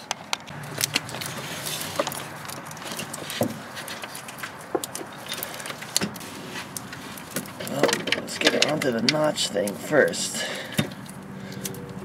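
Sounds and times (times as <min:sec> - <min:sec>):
plastic wiring rustling: 0:00.0 - 0:11.9
light metal clicks and knocks: 0:06.8 - 0:11.8.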